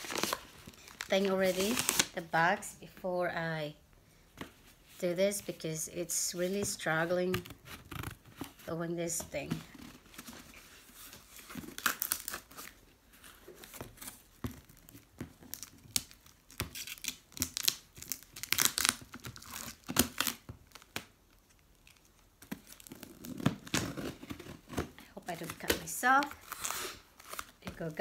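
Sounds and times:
packaging crinkling and tearing: 0.0s - 2.2s, 9.6s - 28.0s.

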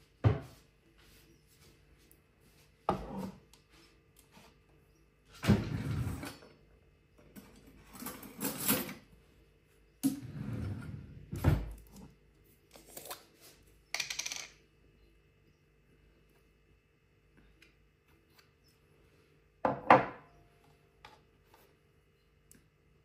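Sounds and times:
objects scraping and clattering: 5.4s - 6.6s, 7.3s - 9.1s.

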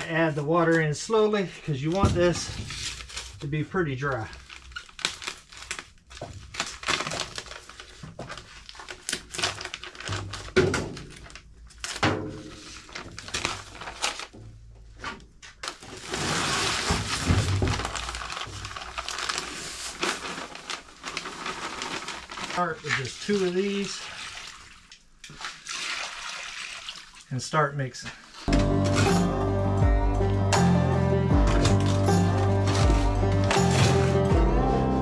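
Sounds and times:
paper sack crinkling and tearing: 1.7s - 24.8s, 31.4s - 34.4s
dry mix pouring: 15.6s - 27.4s, 31.2s - 34.4s.

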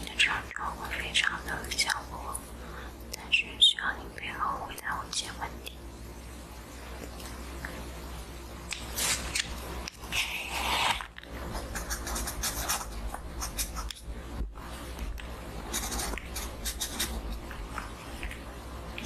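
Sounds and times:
pen scratching on paper: 11.6s - 14.0s, 15.7s - 17.3s.

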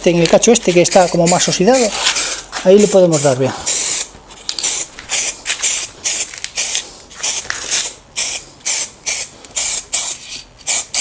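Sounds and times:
spray paint can hissing: 0.7s - 11.0s.

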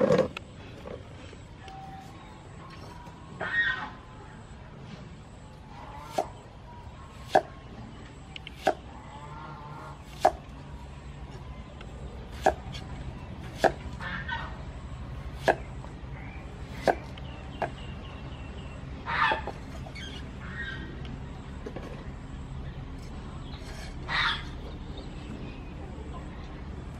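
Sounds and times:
birds calling: 0.0s - 26.4s.

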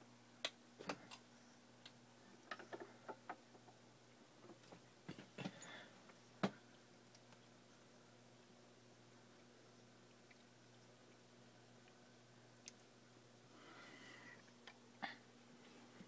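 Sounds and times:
low steady hum: 0.0s - 16.0s
faint clicks and ticks: 4.4s - 7.8s.

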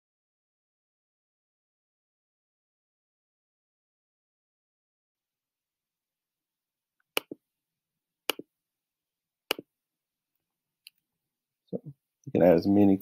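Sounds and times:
computer mouse clicks: 7.2s - 7.4s.

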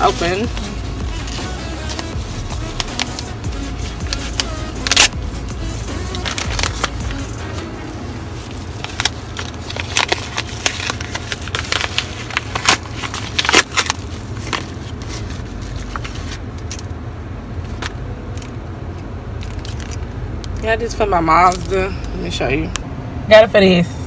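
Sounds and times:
low rumble: 0.0s - 16.6s
plastic package crinkling: 6.0s - 7.6s, 8.4s - 16.8s, 19.4s - 20.6s.

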